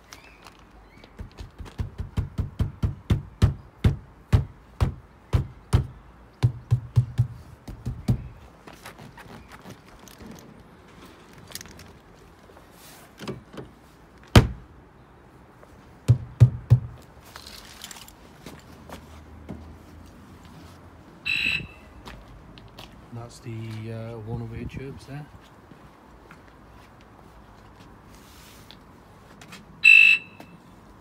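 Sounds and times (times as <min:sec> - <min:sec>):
footsteps on hard ground: 0:07.2 - 0:13.0, 0:16.9 - 0:23.9, 0:25.3 - 0:29.8.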